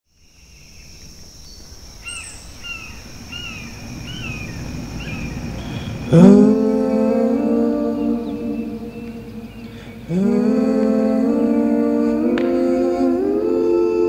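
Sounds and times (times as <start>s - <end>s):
bird call: 0.2s - 11.4s
music with loud held chord: 6.1s - 14.0s
steady high thin tone: 6.1s - 14.0s.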